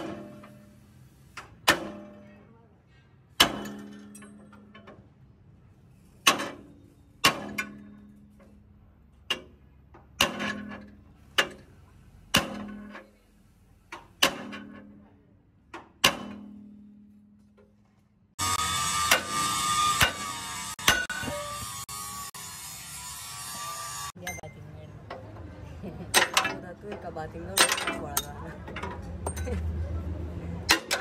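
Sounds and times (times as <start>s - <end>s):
hammer striking steel: 0.0s - 0.8s, 1.4s - 2.4s, 3.3s - 5.0s, 6.2s - 8.5s, 10.1s - 11.7s, 12.3s - 13.1s, 14.2s - 15.1s, 15.8s - 17.4s, 18.4s - 21.7s, 26.1s - 26.6s, 30.6s - 31.0s.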